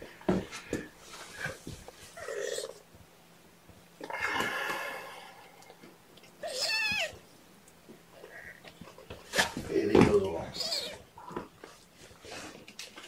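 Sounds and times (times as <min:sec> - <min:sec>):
bedding rustling: 0:00.0 - 0:03.9
kittens mewing: 0:06.4 - 0:07.2, 0:10.3 - 0:11.5.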